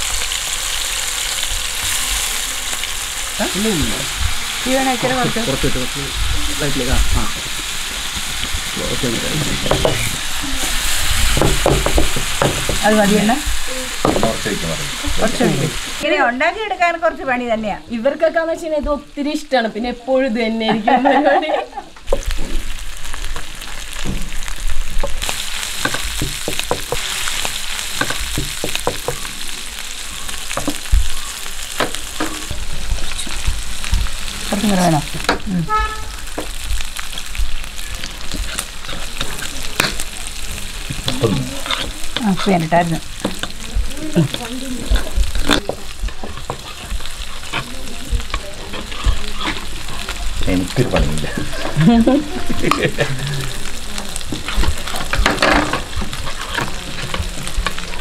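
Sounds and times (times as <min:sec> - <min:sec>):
mussels sizzling in a pan: 0:00.0 - 0:58.0
spatula clicking and scraping: 0:38.1 - 0:40.0, 0:41.1 - 0:43.6, 0:44.3 - 0:50.2, 0:54.3 - 0:58.0.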